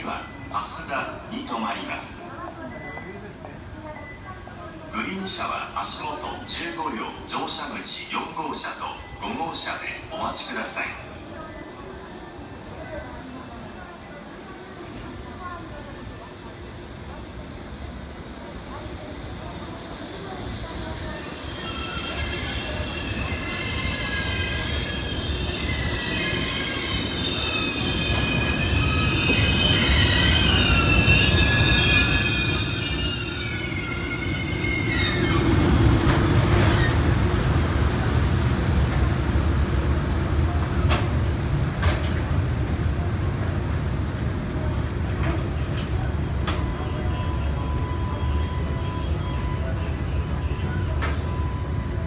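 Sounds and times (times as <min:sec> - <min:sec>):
high wavering squealing: 0:21.1 - 0:37.6.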